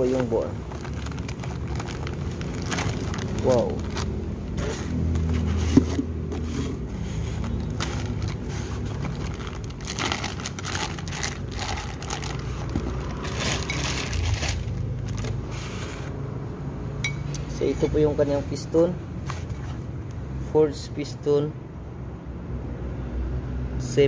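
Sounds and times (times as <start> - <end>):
plastic bag crinkling: 0.0 - 5.4, 7.3 - 15.8
foam packaging rustling: 0.0 - 16.1.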